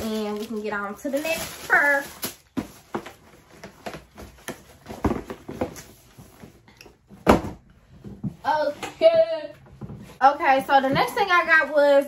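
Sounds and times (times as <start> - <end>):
items knocking and rustling: 0.0 - 8.9.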